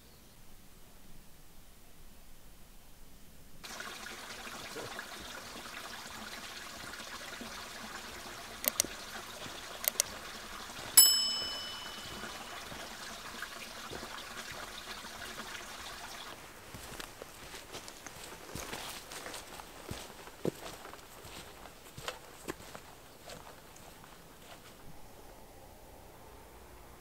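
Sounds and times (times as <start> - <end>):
mouse clicks: 8.6 - 8.9, 9.8 - 10.1
notification bell ding: 11.0 - 12.7.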